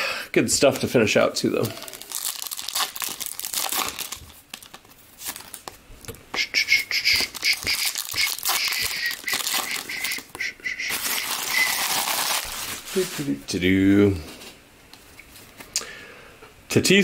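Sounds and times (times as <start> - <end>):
foil wrappers crinkling and tearing: 1.6 - 5.8, 7.1 - 13.4.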